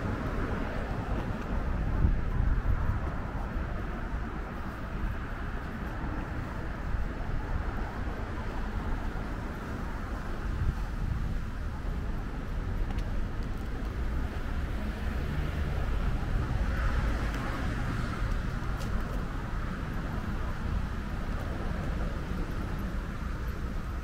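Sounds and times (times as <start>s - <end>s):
traffic rumble: 0.0s - 24.0s
vehicle passing: 14.1s - 20.5s.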